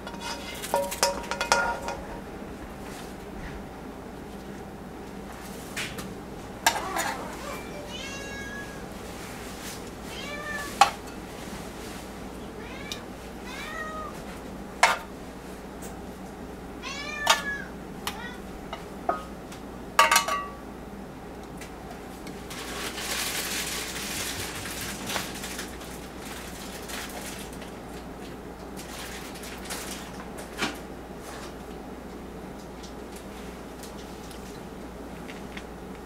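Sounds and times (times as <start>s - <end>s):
cat meowing: 6.7s - 9.0s, 10.0s - 10.8s, 12.4s - 14.2s, 16.8s - 18.5s.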